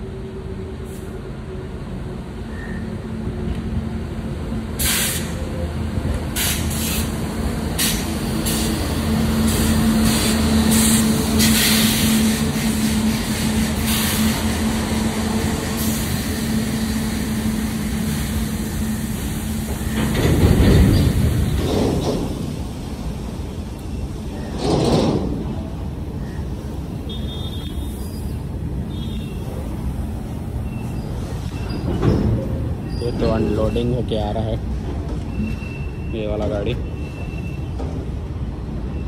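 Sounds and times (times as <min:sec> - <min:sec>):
electric locomotive humming: 0:00.0 - 0:36.1
air hissing: 0:04.8 - 0:05.4.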